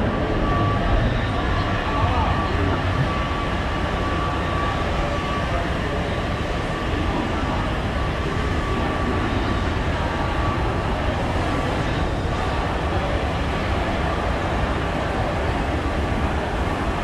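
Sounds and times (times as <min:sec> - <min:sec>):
hall hum: 0:00.0 - 0:03.7
thin high whine: 0:00.0 - 0:05.6
escalator drone: 0:00.0 - 0:16.6.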